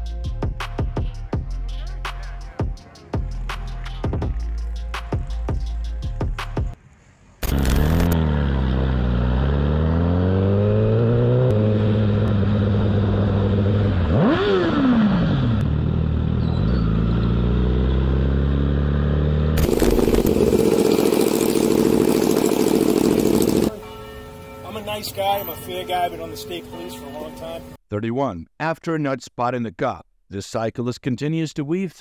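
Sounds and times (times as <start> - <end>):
motorcycle engine revving: 7.4 - 23.7
rough motorcycle engine running: 7.4 - 23.7.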